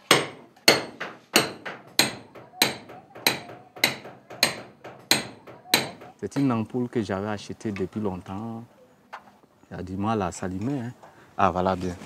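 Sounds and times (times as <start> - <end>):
hammer striking nails: 0.0 - 6.2.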